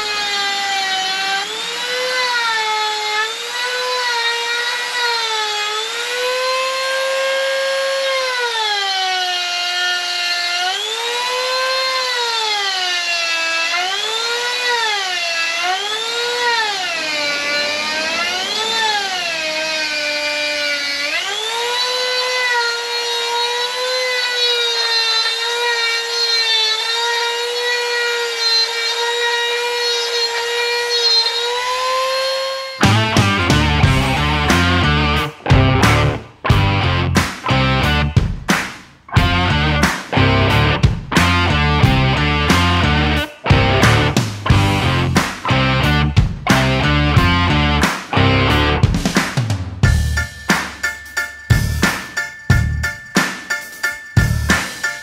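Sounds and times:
electric grinder whining on wood: 0.0s - 38.1s.

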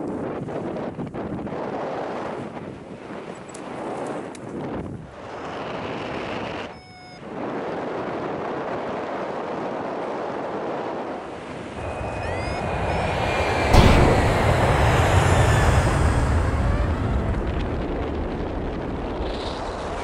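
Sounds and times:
wind roaring over microphone: 0.0s - 20.0s
wind buffet: 9.8s - 20.0s.

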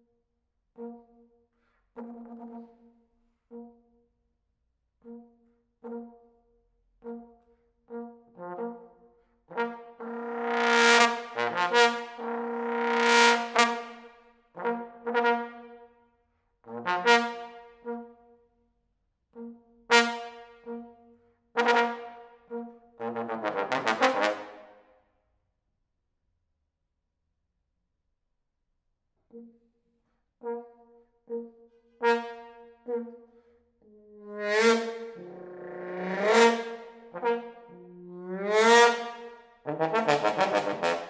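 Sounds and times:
solo trombone playing: 9.5s - 14.0s, 16.7s - 18.0s, 19.9s - 20.8s, 21.6s - 24.7s, 34.2s - 41.0s.

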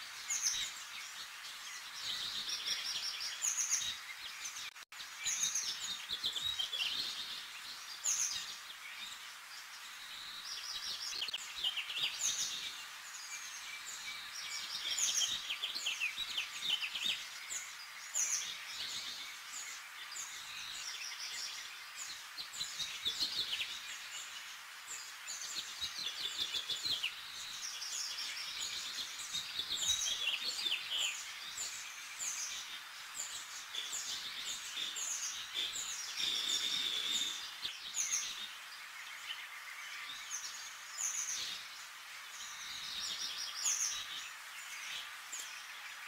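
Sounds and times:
small birds chirping: 0.0s - 46.0s
steady hiss: 0.0s - 46.0s.

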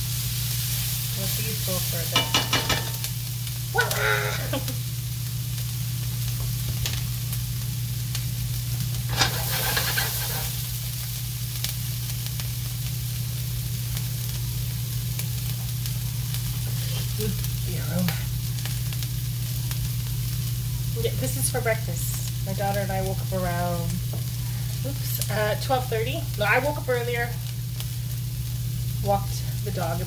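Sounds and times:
vegetables sizzling in frying pan: 0.0s - 30.0s.

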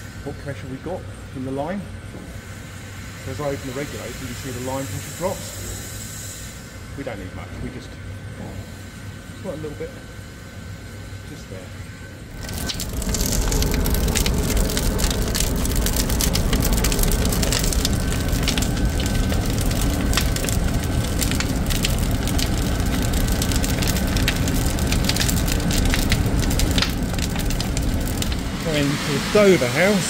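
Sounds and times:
fire crackling and rumbling: 6.6s - 30.0s.

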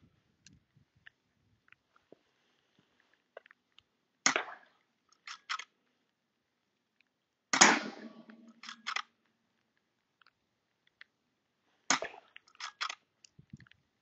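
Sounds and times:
air rifle shots: 7.6s - 9.0s
metallic lever clicks: 7.6s - 9.1s.

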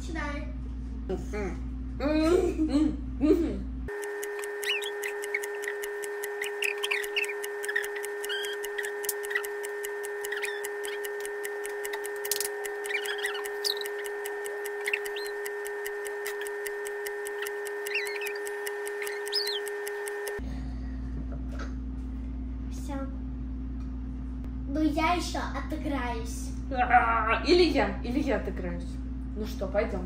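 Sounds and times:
clock ticking: 3.9s - 20.4s
faint high chirps: 4.2s - 20.4s.

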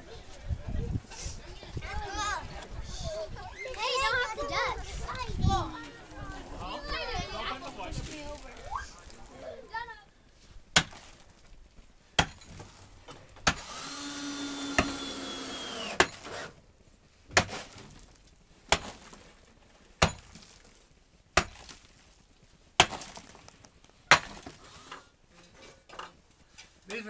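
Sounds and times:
pick striking hard earth: 10.7s - 11.4s, 12.2s - 12.8s, 13.4s - 13.9s, 15.8s - 16.4s, 17.3s - 18.0s, 18.7s - 19.2s, 20.0s - 20.7s, 21.4s - 22.0s, 22.8s - 23.5s, 24.1s - 24.6s.

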